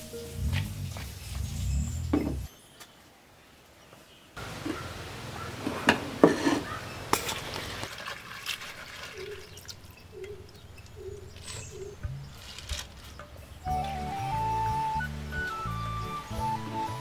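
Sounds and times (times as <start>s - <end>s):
cabbage leaves rustling: 11.4s - 15.8s.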